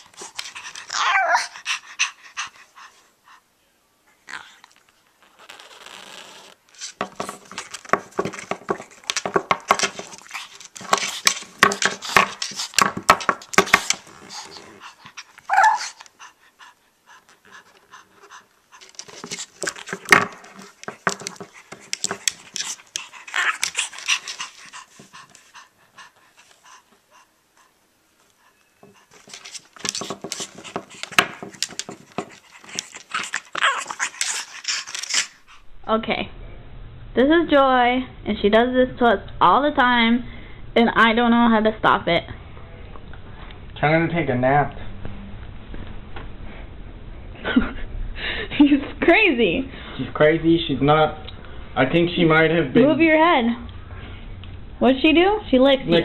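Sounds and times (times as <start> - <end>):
dog whining: 0.0 - 2.2, 13.6 - 16.2, 20.6 - 25.1, 28.5 - 35.6
dog panting and growling: 0.0 - 3.5, 6.8 - 35.7.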